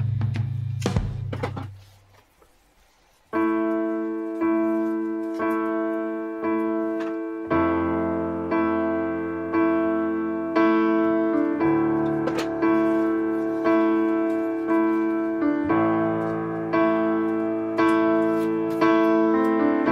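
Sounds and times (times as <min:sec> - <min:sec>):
guitar and drums music: 0:00.0 - 0:01.7
piano playing repeated chords: 0:03.4 - 0:19.9.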